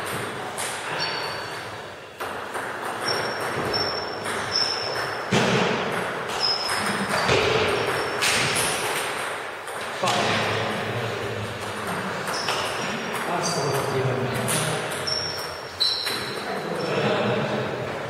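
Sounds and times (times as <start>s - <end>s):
sneakers squeaking on wooden floor: 0.8s - 2.1s, 2.8s - 8.8s, 11.9s - 13.0s, 14.6s - 17.0s.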